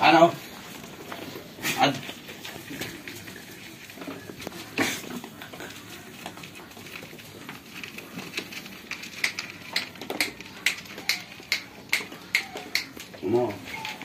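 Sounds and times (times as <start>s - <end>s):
goats jostling at wooden trough: 0.0s - 14.0s
sharp clicks and taps: 9.1s - 13.2s.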